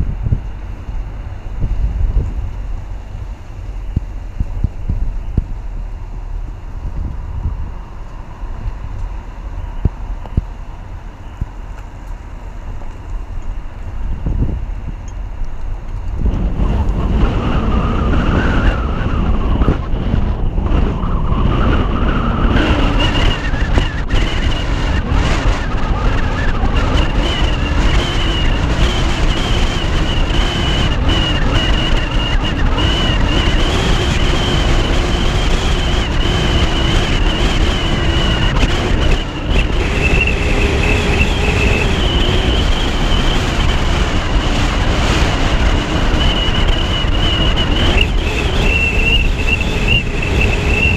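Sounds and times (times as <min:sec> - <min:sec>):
car road noise: 0:00.0 - 0:50.9
wind buffeting microphone: 0:00.0 - 0:50.9
thin high whistle: 0:46.0 - 0:50.9.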